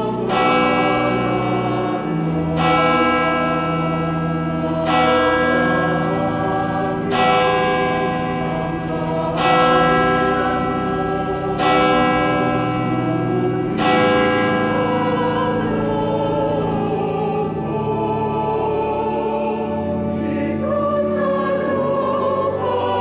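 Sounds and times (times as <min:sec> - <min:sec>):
church bell tolling: 0:00.0 - 0:18.4
choir singing: 0:00.0 - 0:23.0.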